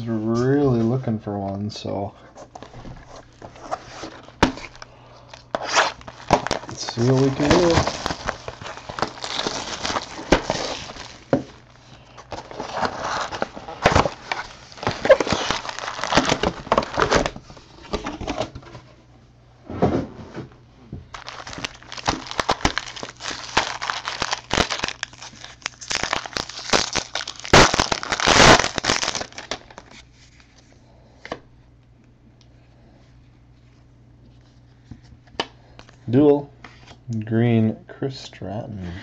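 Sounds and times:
cards being handled: 2.6s - 18.2s, 21.1s - 31.4s
foil wrappers crinkling and tearing: 2.6s - 18.6s, 21.1s - 30.7s.

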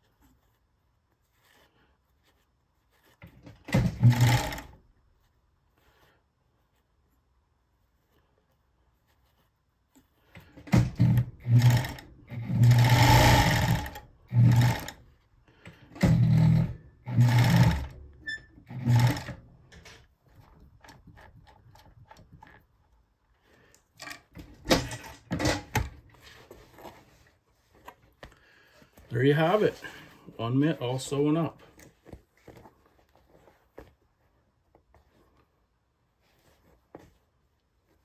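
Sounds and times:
sewing machine stitching rattle: 3.2s - 4.8s, 10.6s - 15.0s, 16.0s - 20.0s.

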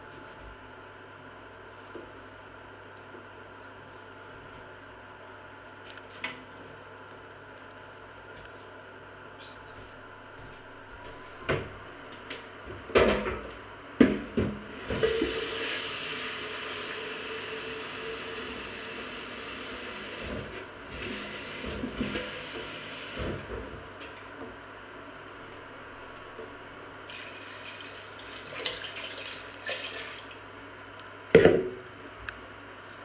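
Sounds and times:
tap water filling plastic jug: 14.9s - 18.6s, 19.2s - 23.6s, 27.1s - 30.4s.

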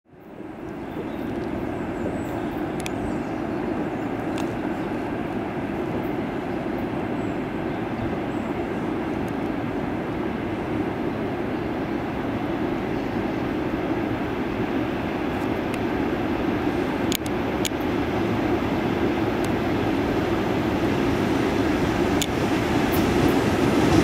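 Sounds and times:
freight train rumbling on rails: 0.1s - 24.0s
faint clicks: 0.6s - 1.6s, 2.8s - 3.0s, 4.2s - 4.6s, 17.1s - 17.9s.

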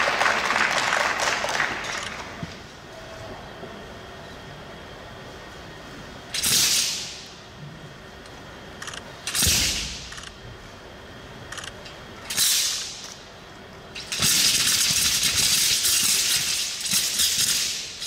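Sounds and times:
rattling whoosh of spinning blade: 14.0s - 18.0s.

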